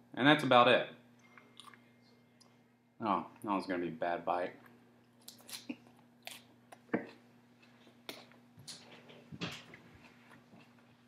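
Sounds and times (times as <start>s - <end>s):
faint steady hum: 0.0s - 11.0s
person chewing salad: 1.3s - 2.5s, 4.7s - 9.0s, 9.6s - 11.0s.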